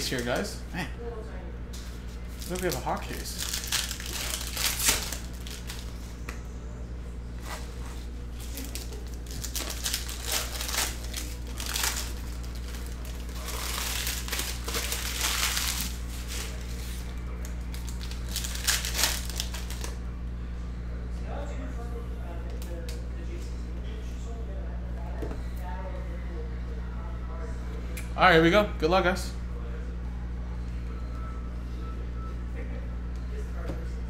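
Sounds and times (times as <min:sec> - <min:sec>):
steady low hum: 0:00.0 - 0:34.0
foil wrappers crinkling: 0:02.2 - 0:06.1, 0:07.4 - 0:20.0.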